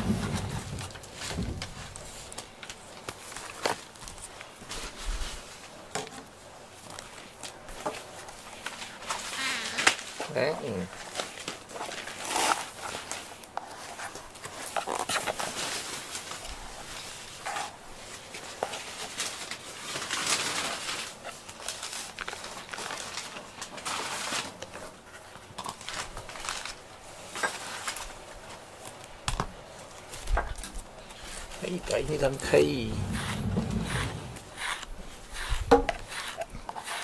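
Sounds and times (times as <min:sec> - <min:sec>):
brush rubbing through fur: 0:31.2 - 0:37.0.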